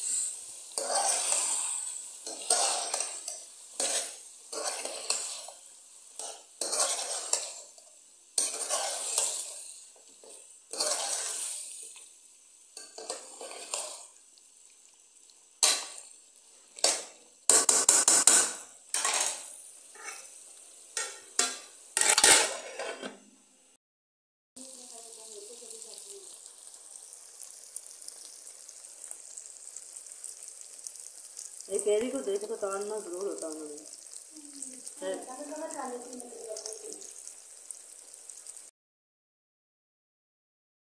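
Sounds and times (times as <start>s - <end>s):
food sizzling in oil: 0.0s - 23.3s, 24.6s - 38.7s
utensil scraping a pan: 0.1s - 5.6s, 6.2s - 7.7s, 8.4s - 11.7s, 12.8s - 14.1s, 21.0s - 23.2s.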